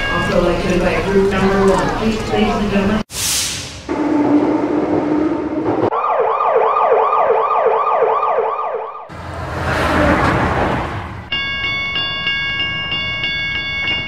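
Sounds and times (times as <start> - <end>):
siren yelping: 5.9 - 9.1
vehicle passing rush: 9.1 - 11.3.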